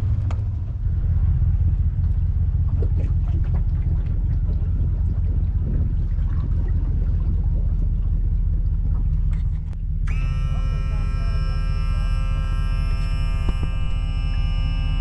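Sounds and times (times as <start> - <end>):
steady low rumble: 0.0 - 15.0
sustained chord of steady tones: 10.1 - 15.0.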